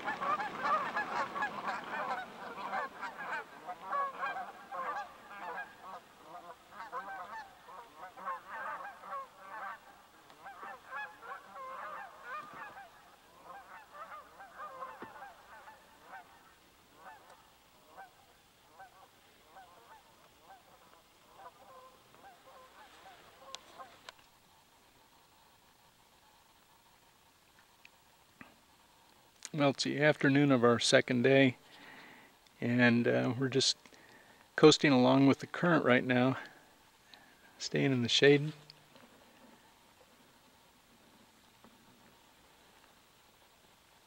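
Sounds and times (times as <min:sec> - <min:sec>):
geese honking in flight: 0:00.0 - 0:24.0.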